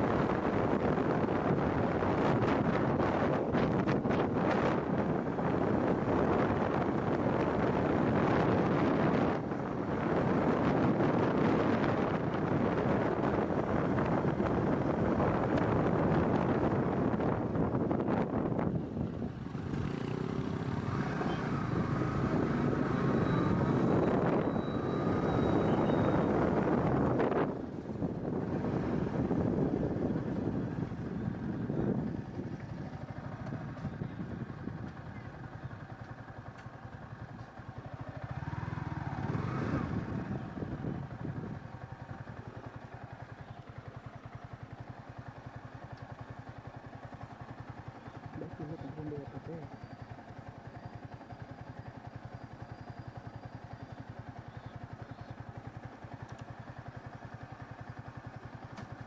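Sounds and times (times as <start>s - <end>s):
wind rushing over microphone: 0.0s - 35.2s, 38.3s - 41.8s
motorcycle engine running: 0.0s - 59.0s.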